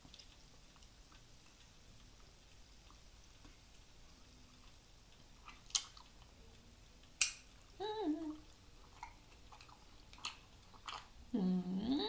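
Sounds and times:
chewing with wet mouth clicks: 0.1 - 3.6, 4.5 - 7.6, 8.4 - 11.3
person humming: 7.8 - 8.5, 11.3 - 12.0.

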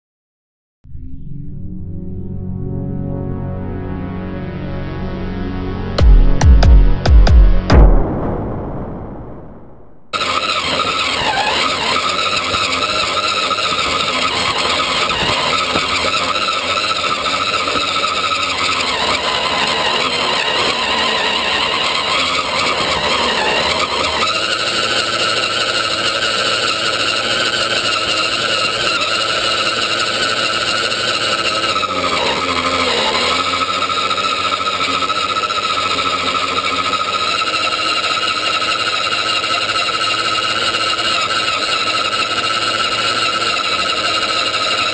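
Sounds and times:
electric motor and gears whining: 10.1 - 44.9.

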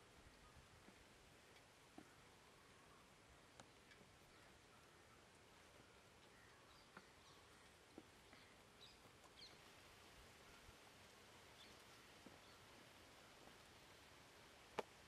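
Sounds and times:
faint steady hiss: 0.0 - 15.0
soft ticks: 0.3 - 2.6, 3.3 - 9.6, 14.7 - 15.0.

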